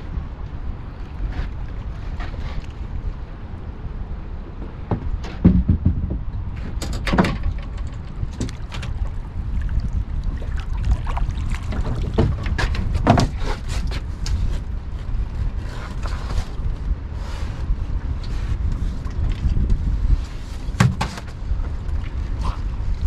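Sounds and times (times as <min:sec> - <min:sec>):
wind rumble on microphone: 0:00.0 - 0:23.0
knocks and clatters from handling: 0:04.9 - 0:09.0.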